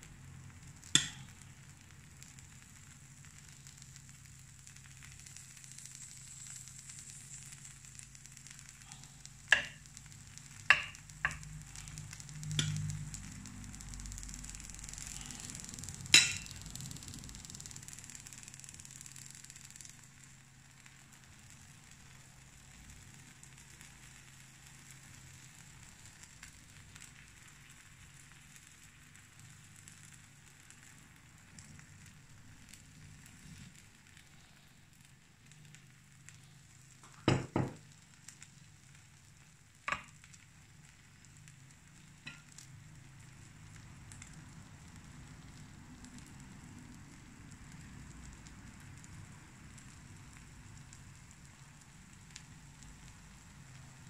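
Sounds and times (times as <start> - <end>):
batter sizzling faintly: 0.0 - 54.0
low steady hum: 7.1 - 18.6.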